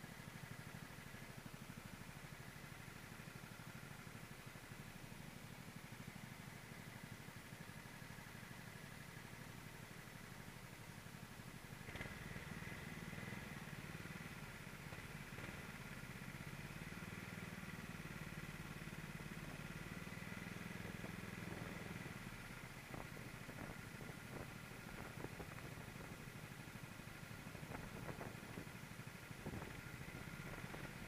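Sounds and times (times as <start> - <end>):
other kart engines nearby: 0.0 - 31.0
racing kart engine running: 11.8 - 31.0.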